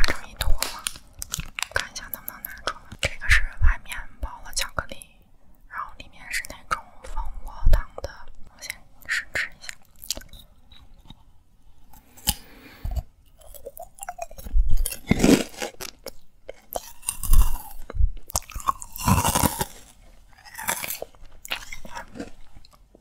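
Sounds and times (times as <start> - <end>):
chewing and crunching candy: 0.0 - 3.4, 8.7 - 23.0.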